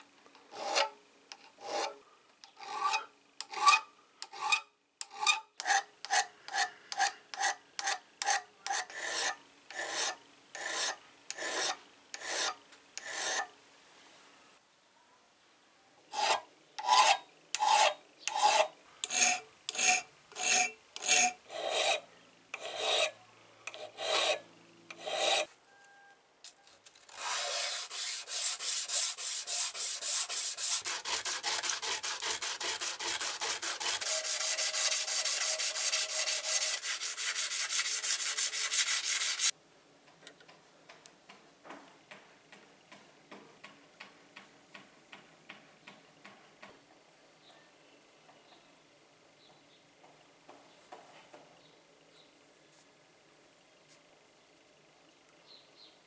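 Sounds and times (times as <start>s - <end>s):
hand file rasping on metal: 0.5s - 0.9s, 1.6s - 2.0s, 2.6s - 13.5s, 16.1s - 22.0s, 22.6s - 25.5s, 27.1s - 39.5s.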